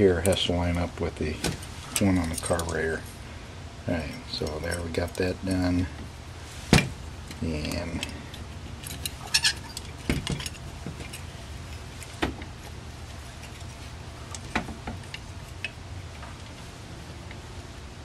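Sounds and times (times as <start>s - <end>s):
steady low hum: 0.0s - 18.0s
metal parts clicking and clinking: 1.5s - 3.0s, 7.2s - 12.6s, 13.2s - 15.8s.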